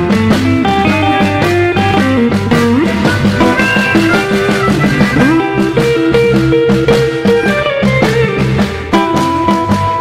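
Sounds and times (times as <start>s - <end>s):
sliding lead guitar: 0.0s - 10.0s
steady drum beat: 1.5s - 8.9s
bass line: 1.7s - 8.2s.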